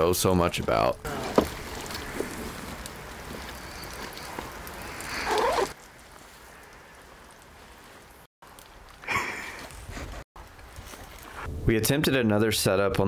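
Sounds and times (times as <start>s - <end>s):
water trickling from filter bag: 1.3s - 9.5s.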